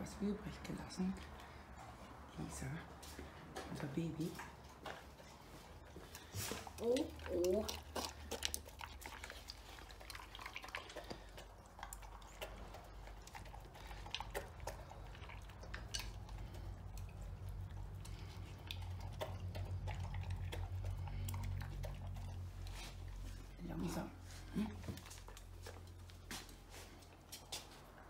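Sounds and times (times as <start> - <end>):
dog chewing and licking: 0.5 - 28.0
teeth clicking against bowl: 6.8 - 22.2.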